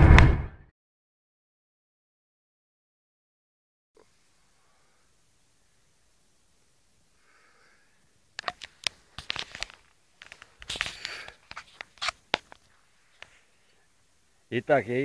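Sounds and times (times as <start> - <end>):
camera handling clicks and scrapes: 8.4 - 13.4.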